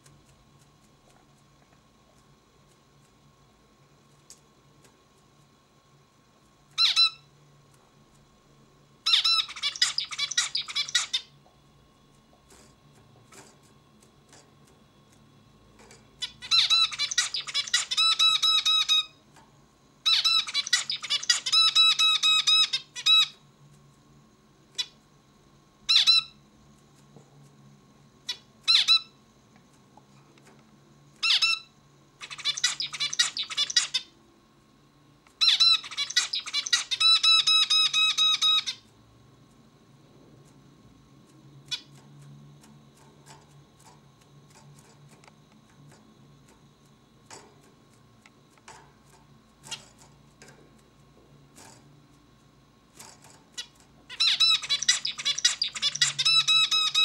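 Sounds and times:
finch singing: 0:06.8 - 0:07.3, 0:09.0 - 0:11.3, 0:16.2 - 0:19.2, 0:20.0 - 0:23.4, 0:31.2 - 0:34.1, 0:35.4 - 0:38.8, 0:53.5 - 0:57.0
short finch calls: 0:09.1 - 0:11.3, 0:16.2 - 0:19.2, 0:20.1 - 0:23.3, 0:31.2 - 0:34.1, 0:35.4 - 0:38.8, 0:53.5 - 0:57.0.

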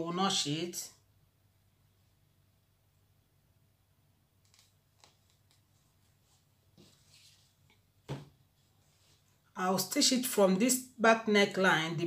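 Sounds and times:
fabric rustling: 0:05.0 - 0:09.5.

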